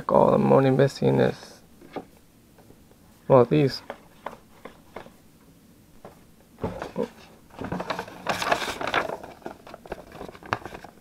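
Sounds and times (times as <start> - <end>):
paper and cardboard rustling: 6.0 - 11.0.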